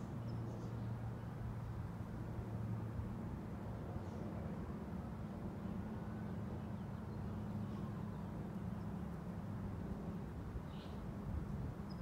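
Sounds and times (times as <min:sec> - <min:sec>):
faint bird chirp: 0:10.6 - 0:11.1, 0:11.8 - 0:12.0.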